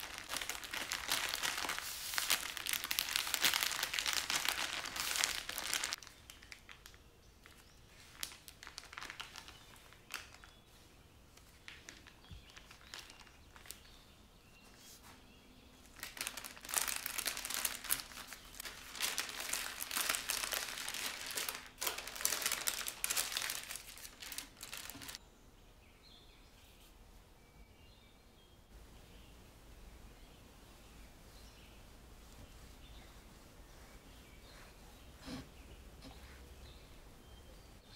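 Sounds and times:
parchment paper crinkling: 0.0 - 14.0, 15.8 - 25.2.

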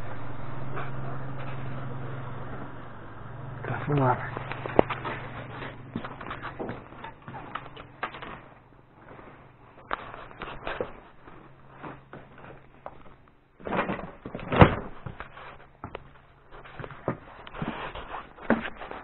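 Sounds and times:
loud thud: 0.0 - 8.0
knocks and scrapes of clutter: 3.6 - 19.0.

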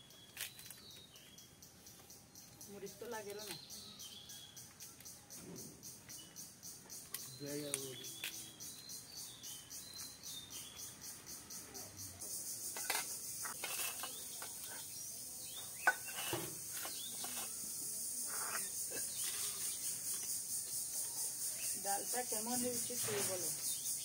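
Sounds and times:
insects chirping: 0.0 - 24.0
steel plates and bowls clinking: 12.7 - 14.9, 15.8 - 17.6.

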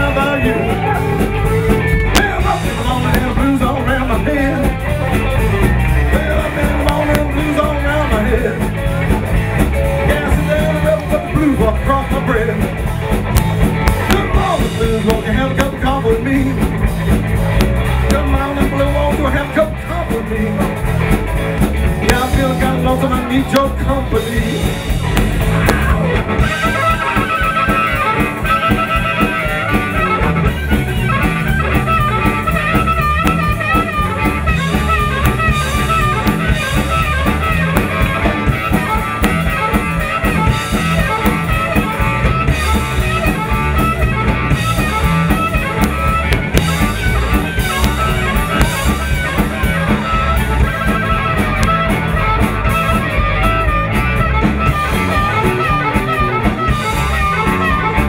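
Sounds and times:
harmonica solo: 0.0 - 10.7, 24.3 - 58.0
blues band playing: 0.0 - 58.0.

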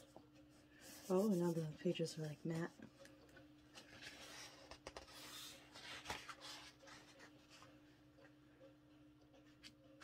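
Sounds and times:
book page turning: 3.7 - 7.7.

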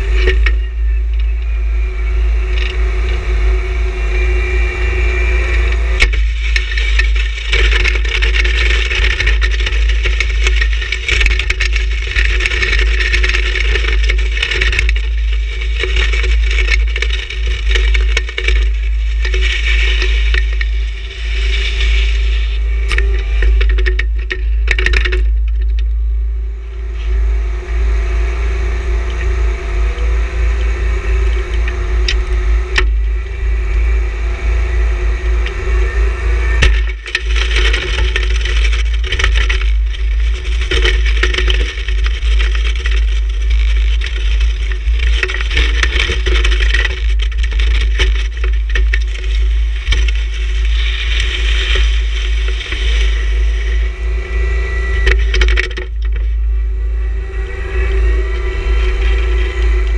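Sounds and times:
diesel tractor engine running: 0.0 - 59.9
blade scraping snow: 34.6 - 55.8.

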